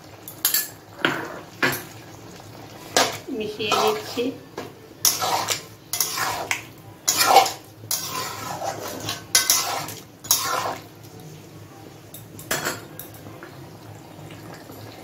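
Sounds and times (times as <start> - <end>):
spatula scraping a metal pan: 3.0 - 4.2, 5.0 - 10.9.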